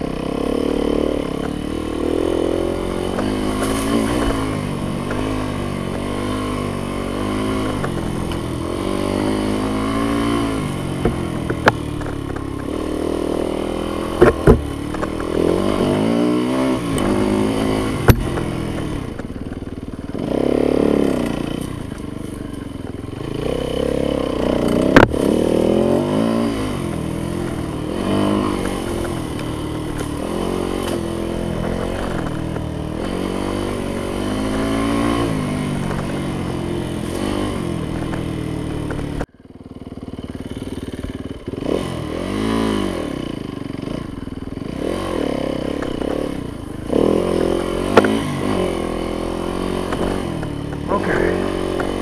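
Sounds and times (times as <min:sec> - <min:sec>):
dirt bike engine revving: 0:00.0 - 0:52.0
sharp knocks and clatters: 0:14.1 - 0:15.7.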